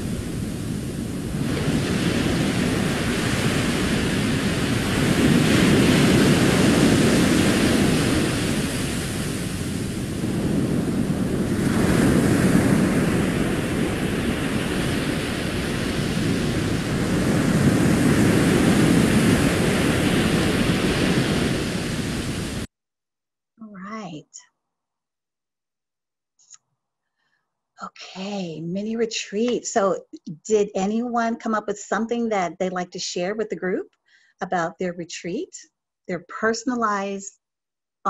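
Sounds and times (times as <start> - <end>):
waves breaking on sandy beach: 0.0 - 22.7.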